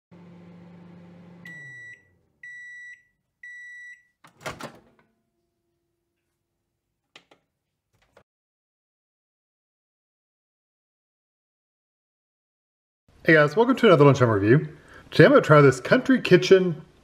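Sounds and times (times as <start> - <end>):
microwave oven humming: 0.1 - 2.7
microwave beeps: 1.0 - 4.2
microwave door clatter: 4.3 - 5.1.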